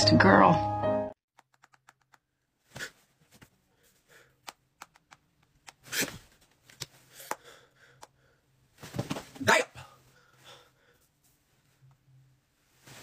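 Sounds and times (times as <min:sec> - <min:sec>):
bedding rustling: 0:08.6 - 0:11.8, 0:12.4 - 0:13.0.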